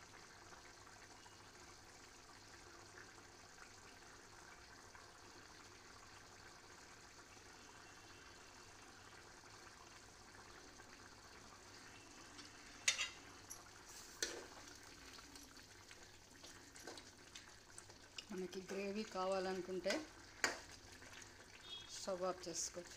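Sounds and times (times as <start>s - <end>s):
curry bubbling in a pan: 0.0s - 22.9s
ladle clattering against pan: 12.8s - 13.2s.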